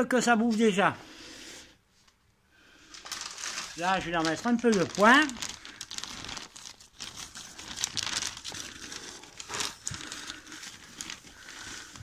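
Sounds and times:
dry hay rustling and crinkling: 3.0 - 11.5.

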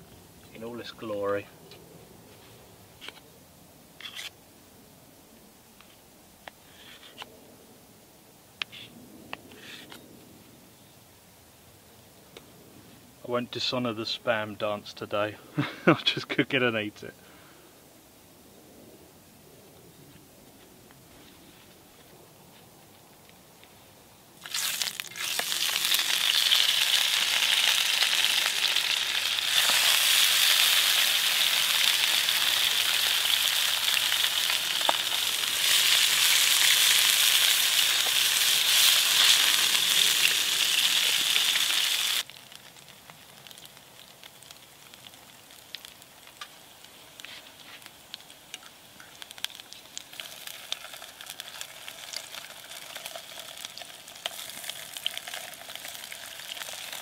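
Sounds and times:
oil spitting and popping: 24.4 - 28.4
meat sizzling in frying pan: 24.4 - 48.4, 49.1 - 57.0.

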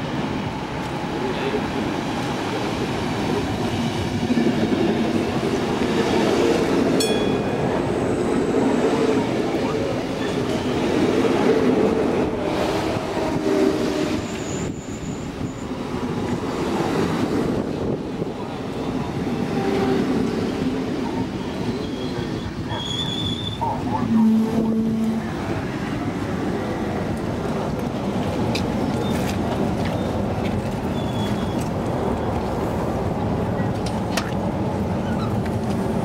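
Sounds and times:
train wheels rumbling on rails: 0.0 - 36.0
high squeals of train wheels: 7.0 - 9.0, 9.6 - 11.0, 13.4 - 16.6, 19.3 - 25.3, 30.8 - 32.3, 35.0 - 35.4.

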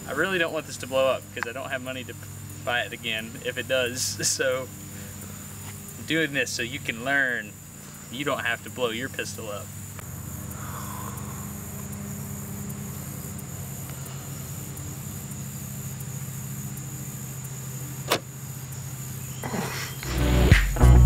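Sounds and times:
small motor humming: 9.6 - 20.1
sharp click: 18.0 - 18.3.

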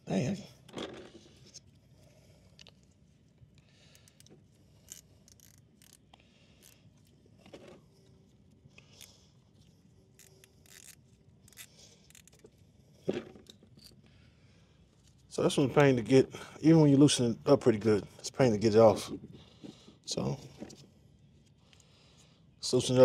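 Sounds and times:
tools clicking and scraping: 3.9 - 8.2, 8.8 - 14.0.

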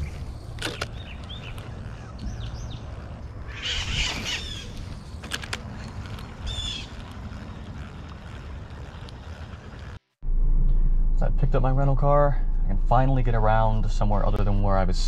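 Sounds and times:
birds chirping: 0.0 - 10.0
steady low rumble: 0.0 - 15.0
bird harsh squawks: 1.0 - 4.9.

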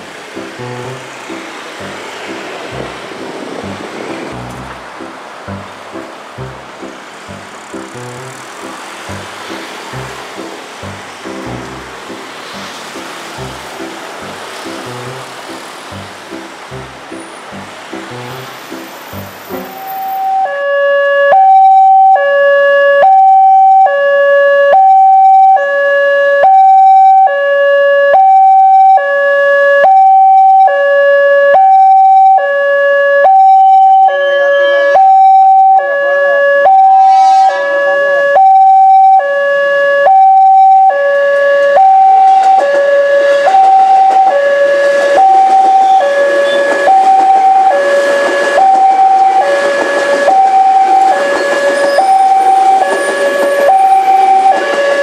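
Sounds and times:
electric train passing: 0.0 - 20.4, 41.6 - 55.0
level-crossing alarm two tones: 0.0 - 22.4, 23.0 - 24.0, 24.7 - 25.8, 29.8 - 30.9, 33.2 - 39.4, 40.0 - 55.0.

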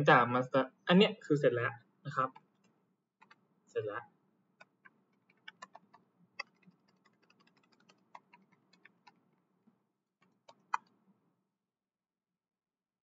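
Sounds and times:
computer keyboard typing: 4.6 - 9.3, 10.2 - 10.9.

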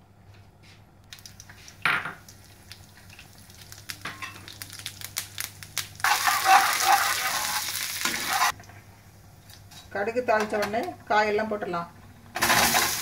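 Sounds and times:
seeds crackling and popping in oil: 1.1 - 8.6
oil sizzling loudly: 1.2 - 8.6, 12.4 - 13.0.

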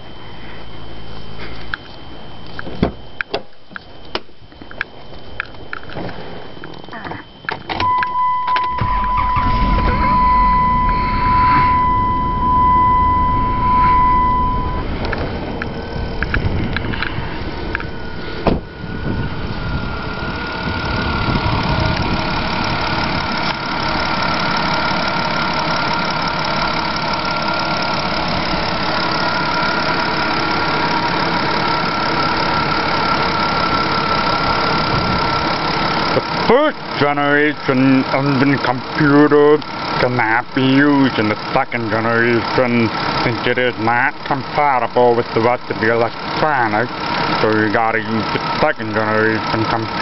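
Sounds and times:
car engine idling: 0.0 - 50.0
high engine whine: 0.0 - 50.0
electronic chime tone: 7.8 - 16.3.

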